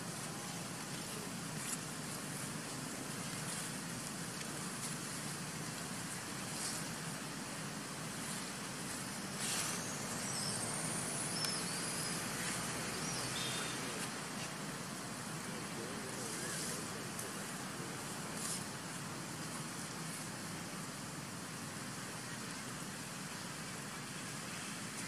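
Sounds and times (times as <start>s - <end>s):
outdoor background hiss: 0.0s - 25.0s
thin rising whistle: 9.1s - 14.0s.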